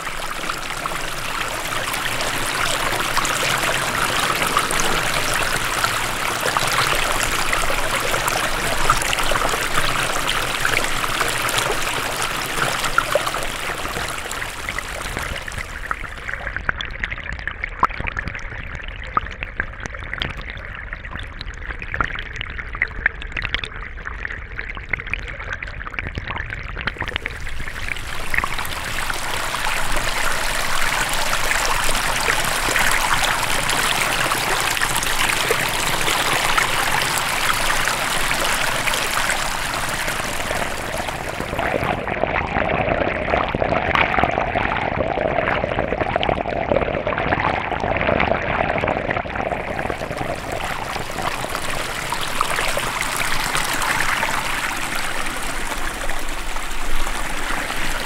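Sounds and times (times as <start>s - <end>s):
stream trickling and splashing: 0.0s - 16.8s, 26.8s - 42.1s, 49.4s - 58.0s
underwater bubbling clicks and pops: 12.6s - 54.4s.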